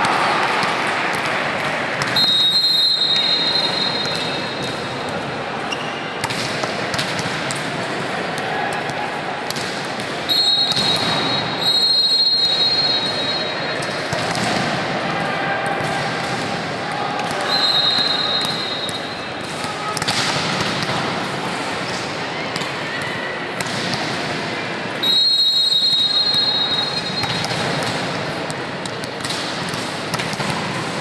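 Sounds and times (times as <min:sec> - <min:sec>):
volleyball slaps: 0:00.0 - 0:05.3, 0:06.2 - 0:13.0, 0:13.8 - 0:25.2, 0:27.0 - 0:31.0
murmur of voices: 0:00.0 - 0:31.0
high whistle: 0:02.2 - 0:04.6, 0:10.3 - 0:13.6, 0:17.4 - 0:19.2, 0:25.0 - 0:27.4.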